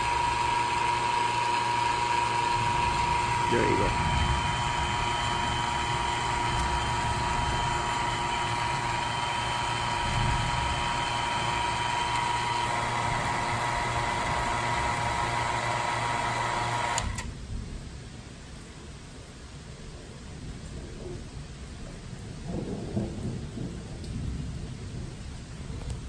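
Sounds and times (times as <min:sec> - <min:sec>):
vacuum pump humming and whining: 0:00.0 - 0:17.3.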